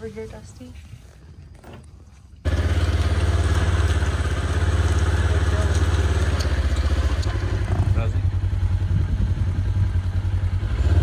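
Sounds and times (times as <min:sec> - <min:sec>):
utility vehicle engine running: 0:02.4 - 0:11.0.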